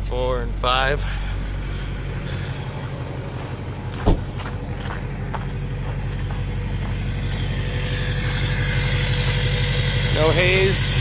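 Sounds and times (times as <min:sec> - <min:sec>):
diesel engine idling: 0:00.0 - 0:11.0
sharp thud: 0:04.0 - 0:04.5.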